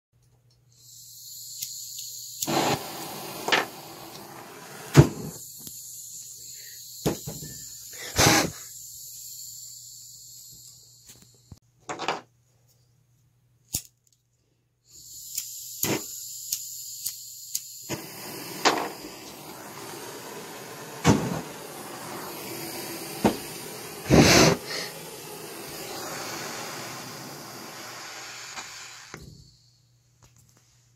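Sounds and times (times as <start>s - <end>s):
high hiss: 0.7s - 11.6s, 14.9s - 29.9s
propane torch burning: 0.9s - 5.8s, 17.8s - 29.4s.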